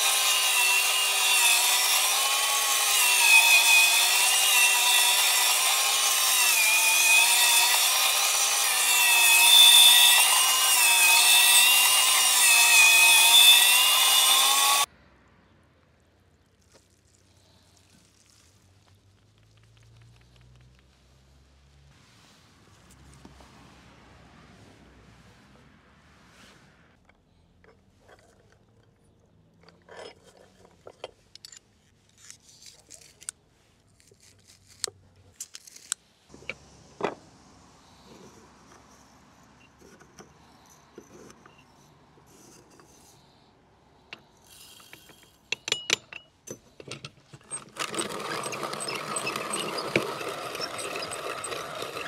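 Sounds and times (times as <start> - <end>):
hand-cranked grinder grinding: 0.0 - 14.9, 27.6 - 33.3, 34.0 - 36.6, 44.1 - 52.0.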